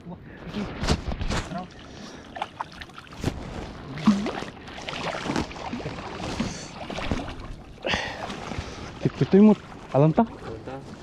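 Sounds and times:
water splashing: 1.3s - 11.0s
fish thrashing at water surface: 3.8s - 9.3s.

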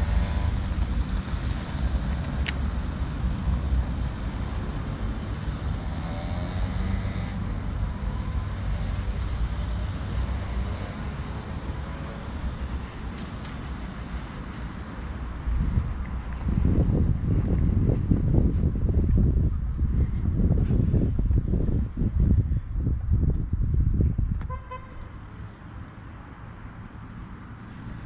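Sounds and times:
wind rumbling on microphone: 12.2s - 25.0s.

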